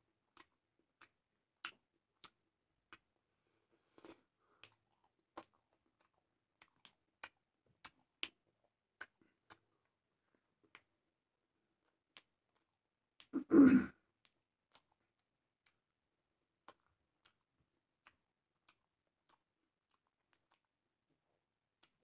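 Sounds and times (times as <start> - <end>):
mouth clicks of chewing: 0.2 - 11.1, 11.7 - 22.0
man clearing his throat: 13.4 - 14.0.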